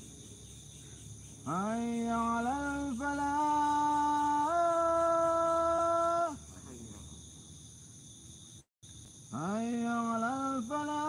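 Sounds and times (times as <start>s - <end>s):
man chanting call to prayer: 1.5s - 7.2s, 9.4s - 11.0s.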